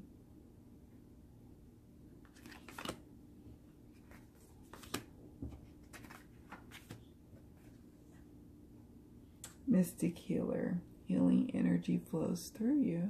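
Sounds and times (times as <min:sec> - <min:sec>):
cards swishing and tapping: 0:02.2 - 0:03.0, 0:04.0 - 0:07.1.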